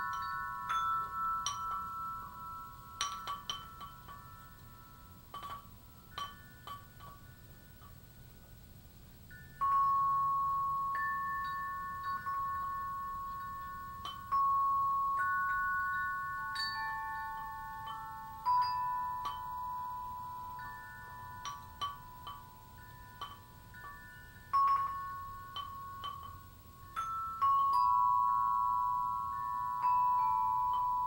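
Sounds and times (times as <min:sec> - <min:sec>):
ringing chime notes: 0:09.4 - 0:31.0.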